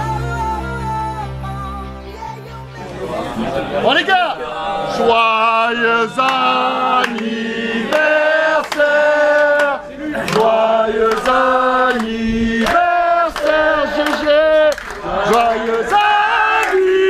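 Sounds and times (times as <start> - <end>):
group chanting in long notes: 2.8 - 17.0
hand-claps: 6.2 - 17.0.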